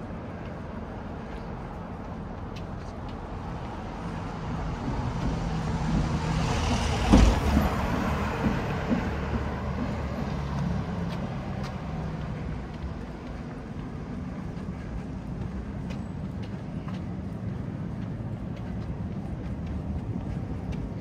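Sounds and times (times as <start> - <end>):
vehicle driving past: 3.9 - 13.4.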